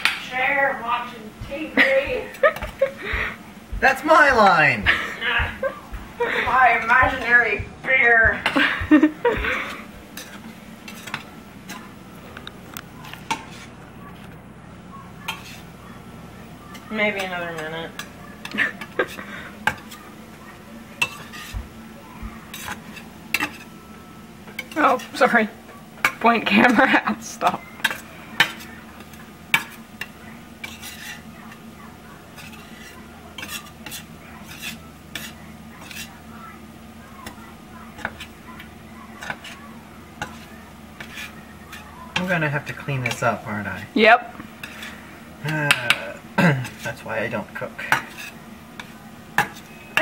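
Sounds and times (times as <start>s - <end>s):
spatula scraping frying pan: 8.3s - 12.0s, 13.2s - 13.8s, 15.2s - 15.8s, 16.7s - 20.2s, 20.9s - 21.7s, 22.4s - 23.8s, 24.4s - 36.5s, 37.1s - 50.0s.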